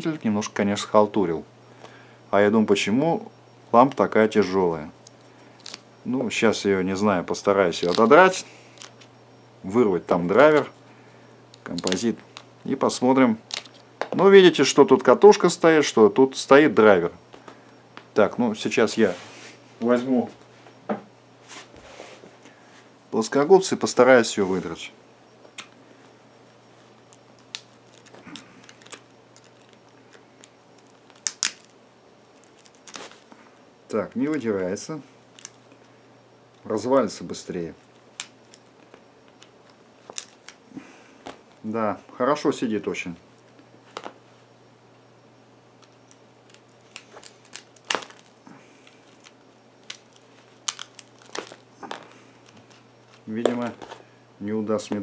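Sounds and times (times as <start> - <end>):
pliers crunching potting compound: 7.7 - 9.0, 11.5 - 12.5, 13.4 - 14.2, 32.3 - 33.2, 37.5 - 40.6, 45.8 - 54.0.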